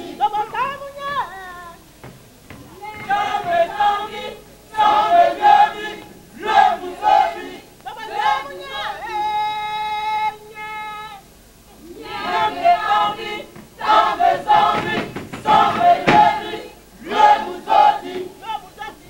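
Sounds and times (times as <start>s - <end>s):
group singing and chanting: 1.8s - 9.8s, 11.7s - 19.0s
sharp knock: 12.3s - 16.6s.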